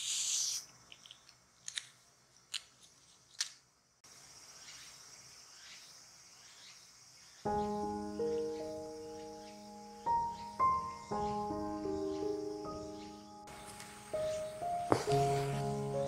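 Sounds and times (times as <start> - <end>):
gentle music with held notes: 7.5 - 16.0.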